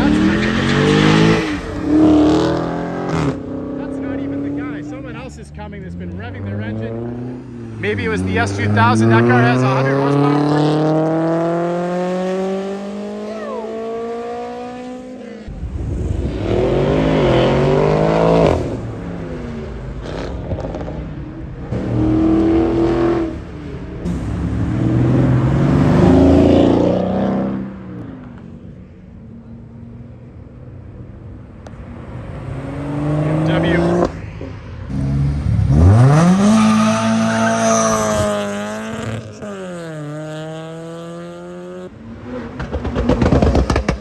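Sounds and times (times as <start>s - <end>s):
engines revving in bursts: 0.0s - 15.5s, 16.1s - 19.0s, 32.4s - 34.2s
sports car engines accelerating: 0.0s - 44.0s.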